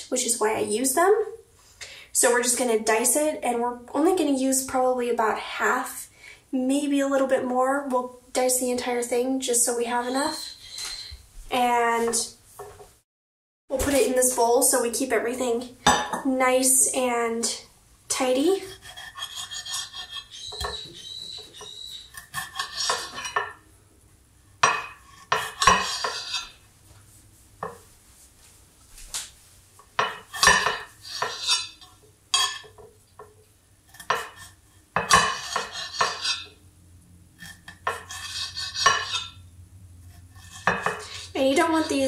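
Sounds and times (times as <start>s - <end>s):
knife clacking on a plate: 24.6s - 26.5s, 30.0s - 33.3s, 34.0s - 34.4s, 35.0s - 36.5s, 37.7s - 39.3s.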